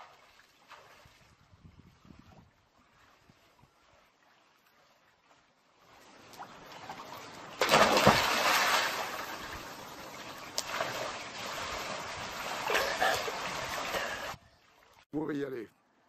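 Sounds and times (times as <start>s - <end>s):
water sloshing and churning: 0.0s - 15.1s
loud splash into pool: 7.6s - 9.6s.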